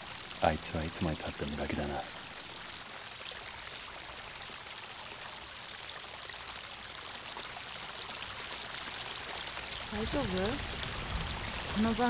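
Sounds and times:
rushing outdoor background hiss: 0.0 - 3.4.

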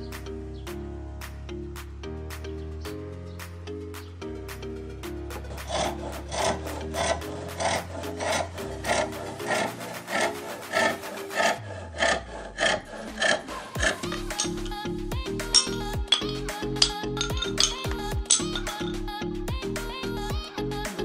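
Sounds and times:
background music: 0.0 - 21.0
hand saw cutting wood: 5.3 - 18.9.

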